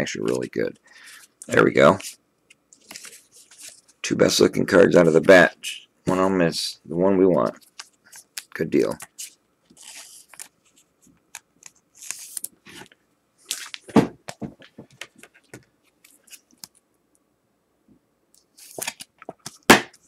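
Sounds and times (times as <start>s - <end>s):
cards clicking and rustling: 7.6s - 12.9s, 18.4s - 20.0s.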